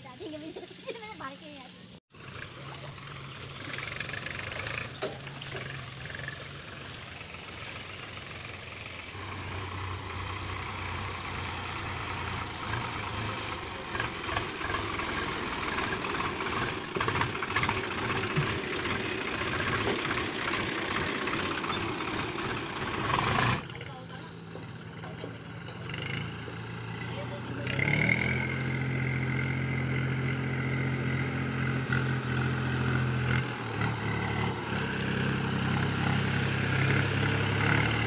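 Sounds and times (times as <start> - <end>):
tractor diesel engine running: 0.3 - 38.0
knocks and clanks: 4.5 - 6.0.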